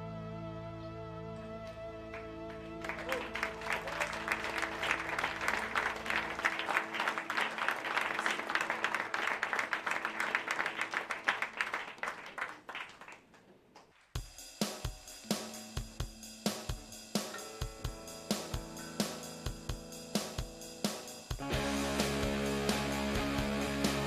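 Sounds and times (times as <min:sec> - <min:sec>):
audience applauding: 0:02.1 - 0:13.9
band music with drum kit: 0:14.2 - 0:24.0
electric guitar chord ringing: 0:17.3 - 0:20.6, 0:21.4 - 0:24.0.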